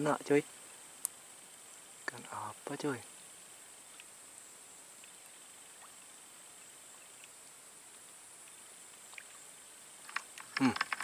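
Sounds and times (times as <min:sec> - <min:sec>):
tiny faint ticks: 0:01.0 - 0:01.2, 0:03.9 - 0:04.2, 0:05.0 - 0:06.0, 0:06.9 - 0:09.4.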